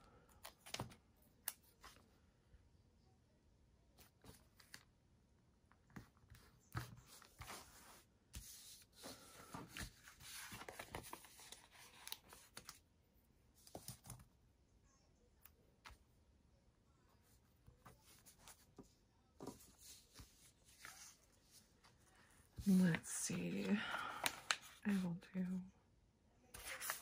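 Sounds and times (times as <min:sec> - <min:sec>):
paper rustling and crinkling: 0:05.9 - 0:12.8, 0:17.7 - 0:25.0, 0:26.5 - 0:27.0.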